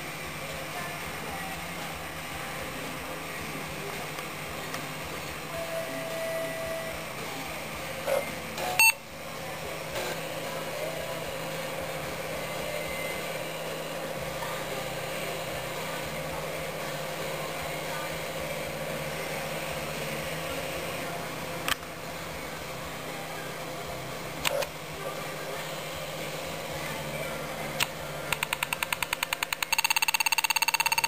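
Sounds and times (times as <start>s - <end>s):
computer hum and whir: 0.0s - 31.0s
sharp clicks: 27.8s - 31.0s.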